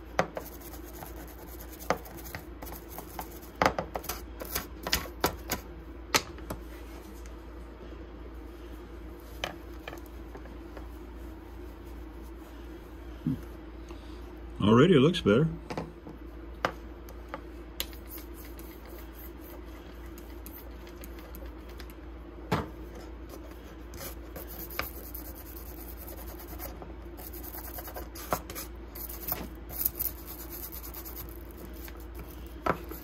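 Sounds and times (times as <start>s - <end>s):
steady low hum: 0.0s - 33.0s
brush scrubbing: 23.6s - 33.0s.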